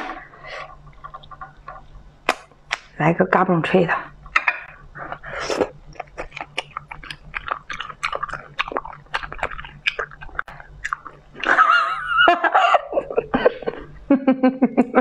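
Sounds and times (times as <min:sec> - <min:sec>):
crunchy chewing: 0:04.5 - 0:11.6.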